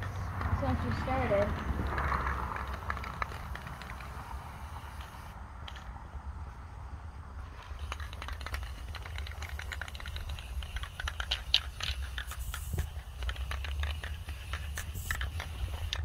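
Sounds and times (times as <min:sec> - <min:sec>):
spray can ball rattling: 0:00.0 - 0:05.9, 0:07.4 - 0:16.0
spray can hissing: 0:00.9 - 0:05.8, 0:07.5 - 0:16.0.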